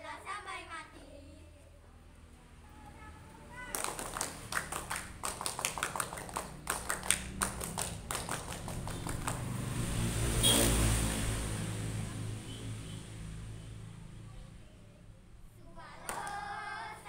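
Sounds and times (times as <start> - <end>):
girls clapping rhythmically: 3.6 - 9.6, 16.0 - 16.8.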